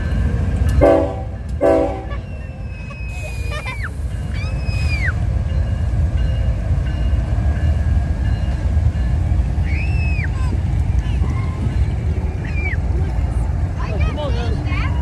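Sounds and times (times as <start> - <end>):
train wheels rumbling: 0.0 - 15.0
high wheel squeals: 2.0 - 5.3.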